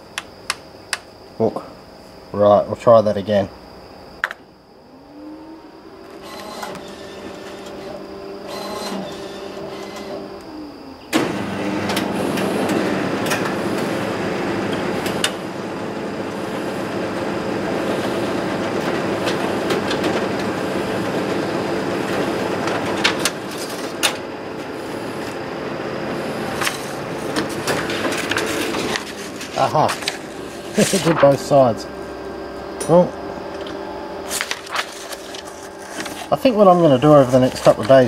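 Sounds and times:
copier hum: 0:00.0 - 0:38.0
copier whirring and rattling: 0:04.8 - 0:38.0
pages feeding clacks: 0:26.6 - 0:31.4, 0:34.2 - 0:38.0.

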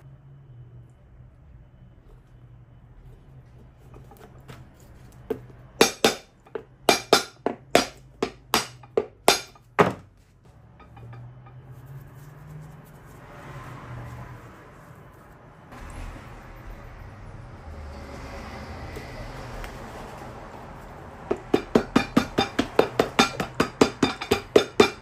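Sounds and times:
hammer striking metal: 0:05.8 - 0:10.0, 0:10.7 - 0:11.6, 0:21.3 - 0:25.0.

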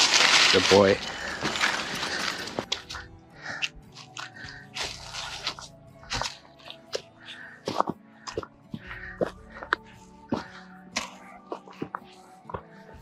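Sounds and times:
footsteps crunching dry leaves: 0:00.0 - 0:03.0, 0:03.9 - 0:07.9
soft background music: 0:00.0 - 0:13.0.

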